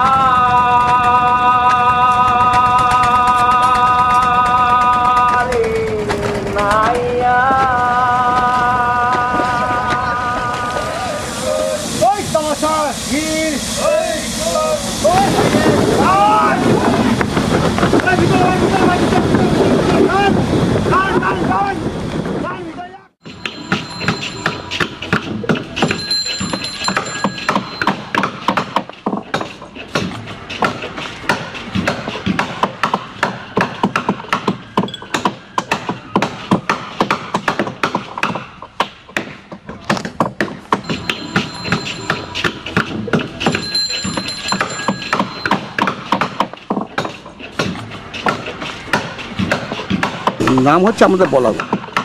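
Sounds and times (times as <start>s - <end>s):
hammering on wood: 27.5s - 43.6s, 45.1s - 52.0s.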